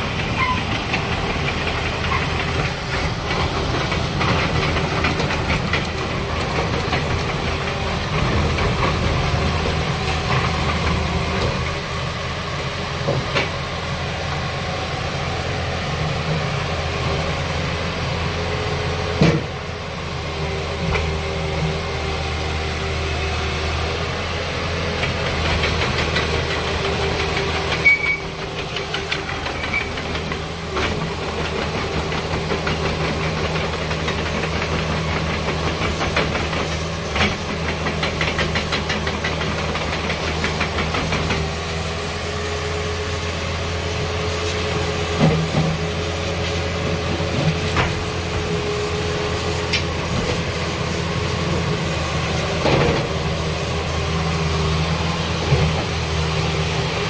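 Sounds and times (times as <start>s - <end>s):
excavator diesel engine running: 0.0s - 57.0s
knocks and clanks: 0.1s - 11.6s, 25.0s - 41.6s.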